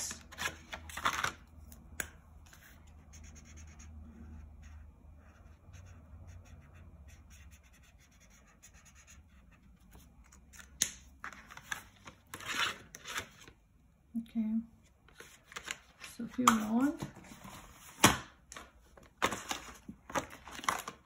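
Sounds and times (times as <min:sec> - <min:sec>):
marker scratching on paper: 0:02.8 - 0:10.1.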